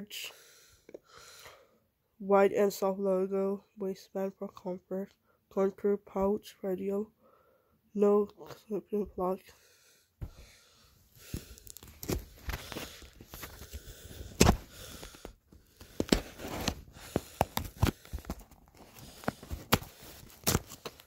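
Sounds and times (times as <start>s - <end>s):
cardboard box being opened: 15.8s - 21.0s.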